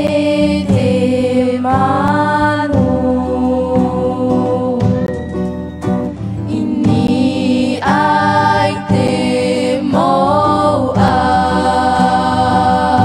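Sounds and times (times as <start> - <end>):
voices singing long notes: 0.0 - 5.6, 6.4 - 13.0
low musical accompaniment: 0.0 - 13.0.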